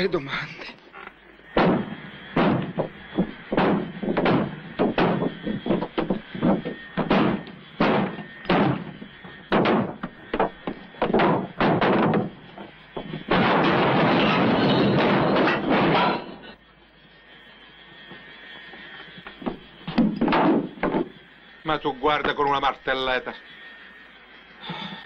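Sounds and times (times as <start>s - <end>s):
loud steady rush of noise: 0.0s - 25.0s
sledgehammer ringing on metal: 3.6s - 12.4s.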